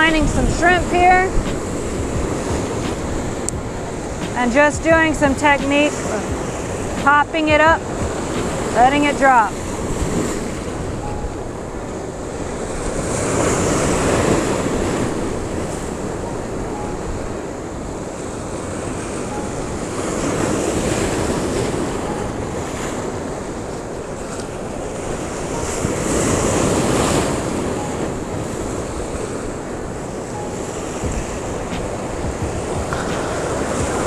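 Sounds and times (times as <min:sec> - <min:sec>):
surf crashing on rocks: 0:00.0 - 0:11.0, 0:12.0 - 0:16.2, 0:18.1 - 0:34.0
wind buffeting microphone: 0:00.0 - 0:34.0.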